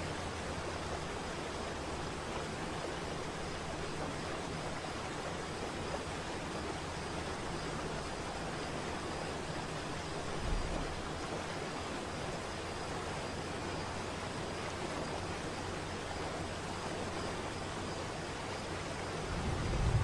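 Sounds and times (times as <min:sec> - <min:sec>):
low rumble: 0:19.2 - 0:20.0.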